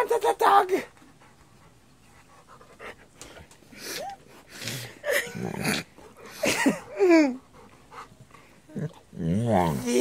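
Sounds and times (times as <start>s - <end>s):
woman's stifled laughter: 6.3s - 7.4s.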